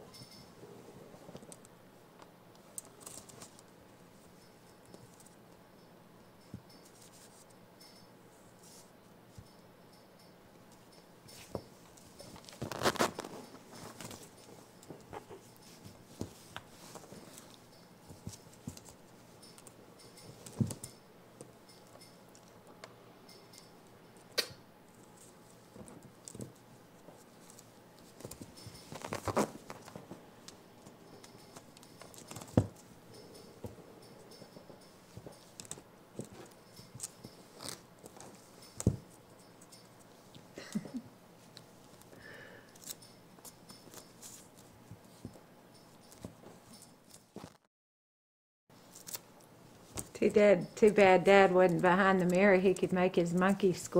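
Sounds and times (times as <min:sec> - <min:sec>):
blanket rustling: 0:11.4 - 0:19.2, 0:28.0 - 0:30.2.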